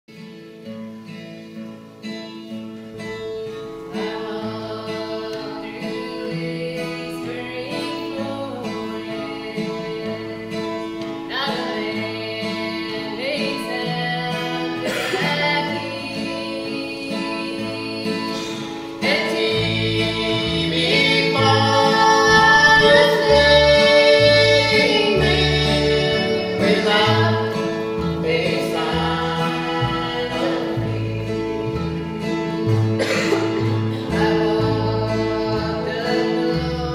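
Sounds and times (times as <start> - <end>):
mandolin: 0.1 - 36.9
strummed acoustic guitar: 0.1 - 36.9
man singing: 3.9 - 36.9
woman singing: 3.9 - 36.9
upright bass: 18.4 - 36.9.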